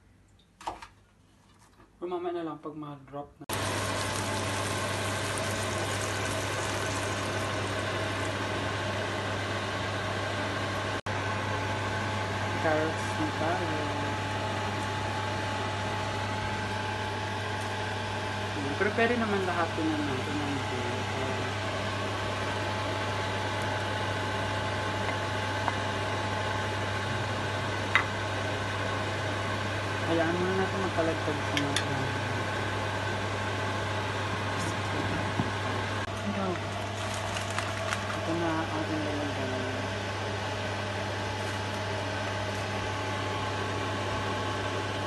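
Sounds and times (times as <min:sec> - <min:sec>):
low machine hum: 0:03.4 - 0:45.0
water poured into a wok: 0:03.5 - 0:08.4
liquid simmering: 0:03.5 - 0:09.5.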